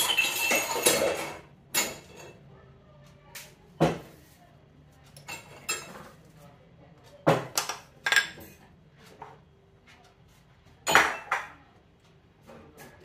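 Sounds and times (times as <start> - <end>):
kitchen rustling and clinking: 0.0 - 2.6, 3.4 - 6.6, 7.2 - 11.7, 12.3 - 13.0.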